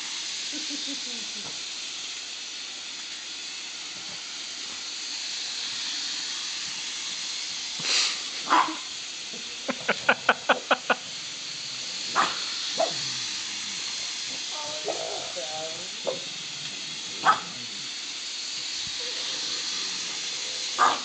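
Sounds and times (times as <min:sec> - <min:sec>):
steady hiss: 0:00.0 - 0:21.0
dog barking sharply: 0:08.5 - 0:08.8, 0:20.8 - 0:21.0
dog yipping: 0:08.5 - 0:08.8, 0:12.2 - 0:13.0, 0:16.0 - 0:16.2, 0:20.8 - 0:21.0.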